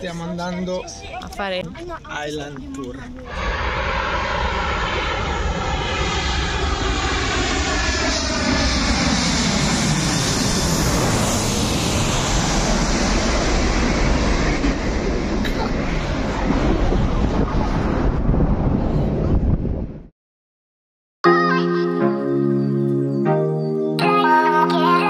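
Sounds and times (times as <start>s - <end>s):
jet airliner passing overhead: 0.0s - 19.9s.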